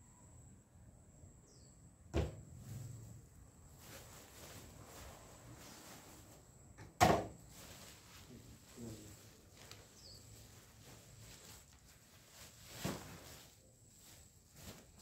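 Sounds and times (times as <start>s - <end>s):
plastic sack rustling: 2.6s - 6.5s, 7.4s - 15.0s.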